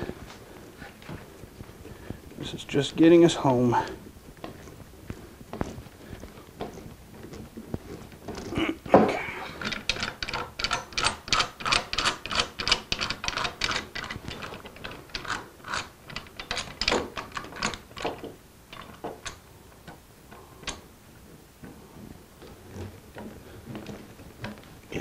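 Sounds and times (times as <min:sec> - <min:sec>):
clamp ratcheting clicks: 0:09.6 - 0:19.4.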